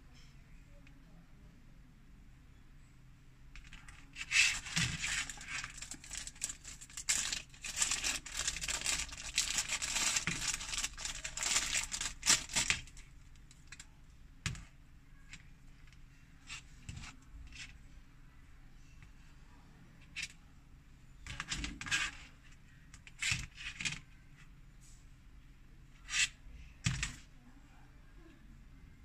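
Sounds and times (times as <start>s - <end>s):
plastic bag crinkling: 3.6s - 13.8s.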